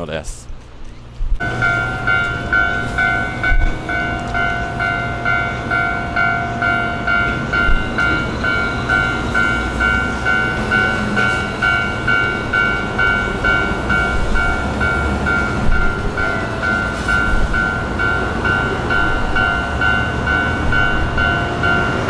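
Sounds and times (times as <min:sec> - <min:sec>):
truck rumbling: 0:01.3 - 0:22.0
level-crossing warning bell: 0:01.4 - 0:22.0.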